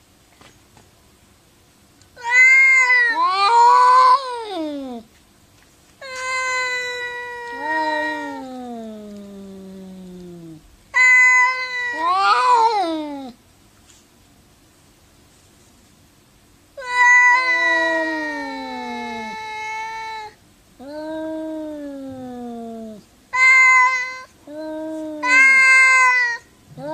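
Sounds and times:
cats yowling: 2.2s - 5.0s, 6.0s - 13.4s, 16.8s - 26.9s.

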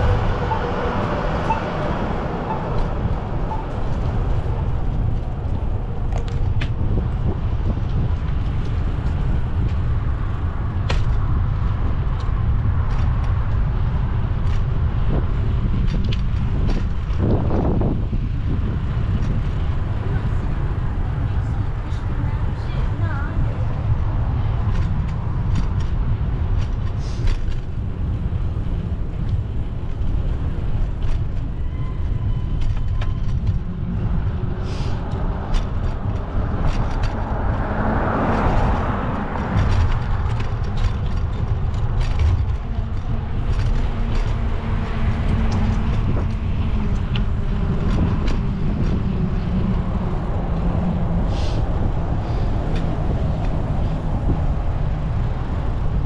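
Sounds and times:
vehicle passing close: 0.0s - 7.8s, 33.2s - 56.0s
road traffic rumble: 0.0s - 56.0s.

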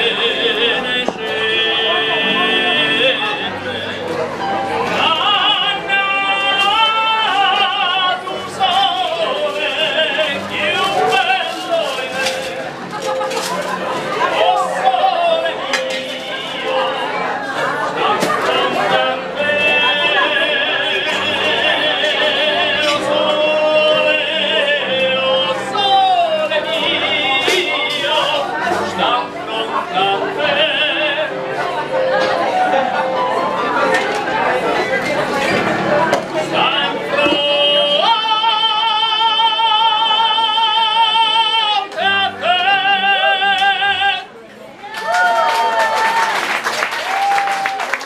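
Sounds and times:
man singing opera: 0.0s - 12.7s, 14.2s - 31.8s, 36.4s - 44.4s.

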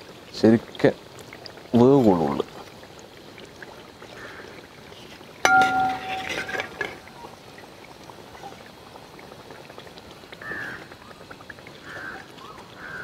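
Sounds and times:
food deep-frying sizzle: 0.0s - 13.0s
metal skimmer clanging on pot: 5.5s - 7.1s.

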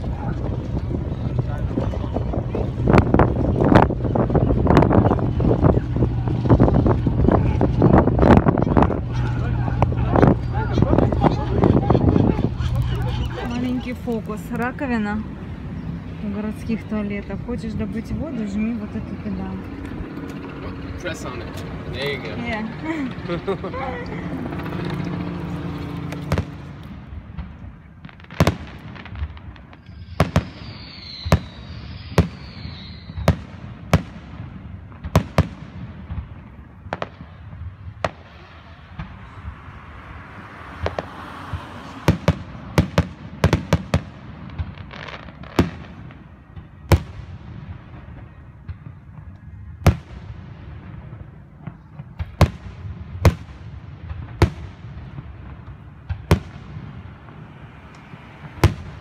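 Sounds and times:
low rumble: 0.0s - 28.1s
fireworks bangs: 0.0s - 59.0s.

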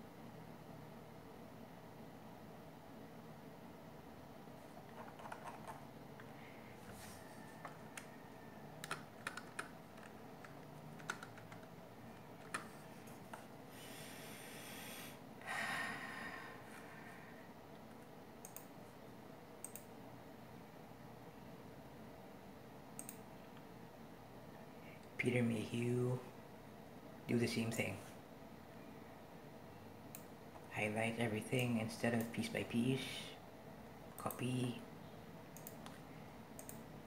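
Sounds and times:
computer keyboard clicks: 4.9s - 5.8s, 8.8s - 11.7s, 12.4s - 12.7s, 18.4s - 18.7s, 19.6s - 19.9s, 35.6s - 36.0s, 36.6s - 36.8s
computer mouse clicks: 4.9s - 5.8s, 7.6s - 8.2s, 8.8s - 11.7s, 12.4s - 13.4s, 18.0s - 18.7s, 19.6s - 19.9s, 23.0s - 23.2s, 35.6s - 36.0s, 36.6s - 36.8s
breath-like rush of noise: 13.7s - 17.5s.

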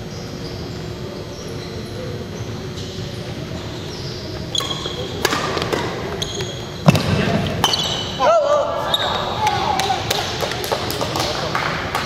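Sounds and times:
sneakers squeaking on court: 0.0s - 8.2s, 8.8s - 9.4s
sports hall murmur: 0.0s - 12.0s.

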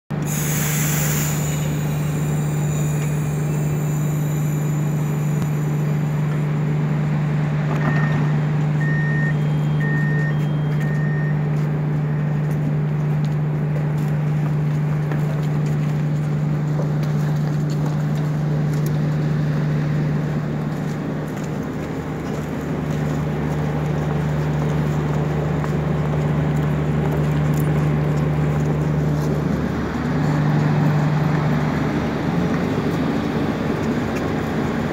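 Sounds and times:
diesel train engine hum: 0.1s - 34.9s
short hiss: 0.2s - 5.5s
short beeps: 7.8s - 12.4s.

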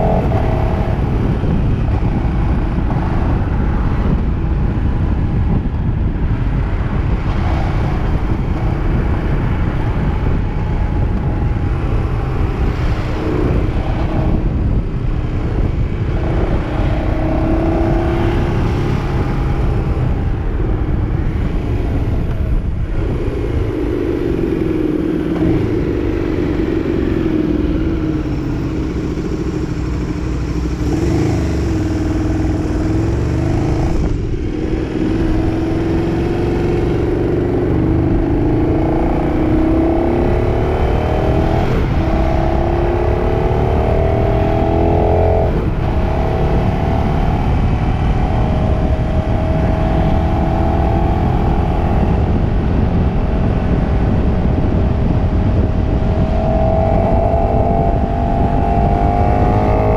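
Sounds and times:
motorcycle engine running: 18.8s - 40.9s, 44.4s - 59.9s.

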